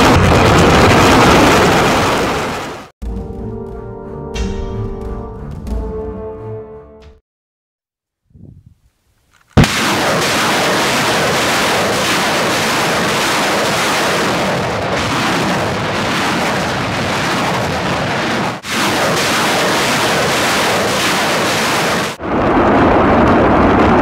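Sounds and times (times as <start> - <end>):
loud rocket launch blast: 0.0 - 2.9, 9.6 - 24.0
roar of rockets launching: 0.0 - 2.9, 9.6 - 24.0.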